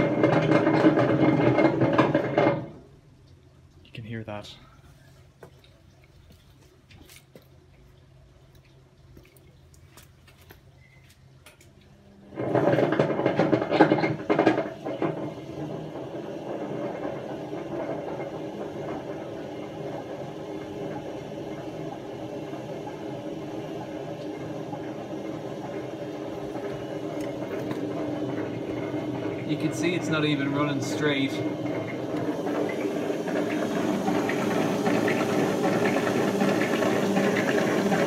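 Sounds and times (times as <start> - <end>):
washing machine drum knocking: 0.0 - 2.8, 12.4 - 38.0
washing machine spinning: 0.0 - 38.0.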